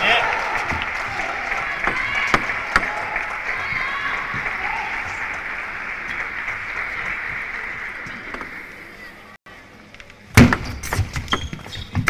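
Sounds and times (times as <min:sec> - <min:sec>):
crowd applauding: 0:00.0 - 0:09.3.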